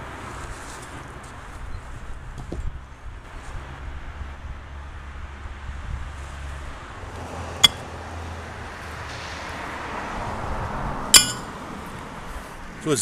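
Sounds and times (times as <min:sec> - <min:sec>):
road traffic rumble: 0:00.0 - 0:13.0
horseshoe clanging on metal stake: 0:07.6 - 0:07.8, 0:11.1 - 0:11.5.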